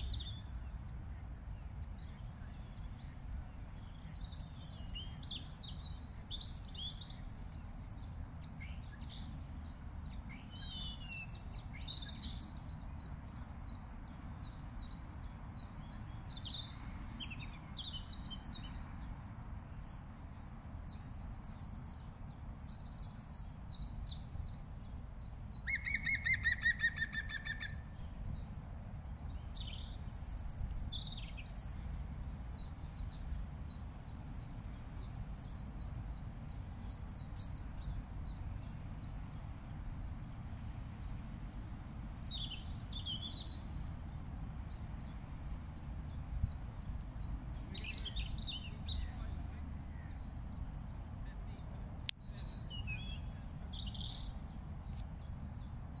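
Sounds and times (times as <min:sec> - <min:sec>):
small birds chirping and trilling: 0:00.0 - 0:56.0.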